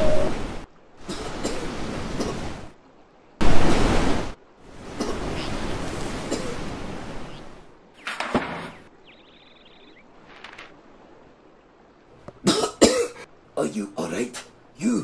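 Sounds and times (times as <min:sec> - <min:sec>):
rushing water: 0:00.0 - 0:15.0
water splashing: 0:03.4 - 0:13.0.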